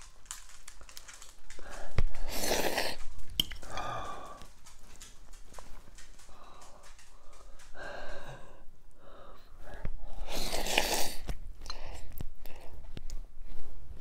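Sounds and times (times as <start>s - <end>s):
breathing and mouth noises: 0.0s - 14.0s
man slurping noodles: 2.3s - 3.0s, 10.3s - 11.2s.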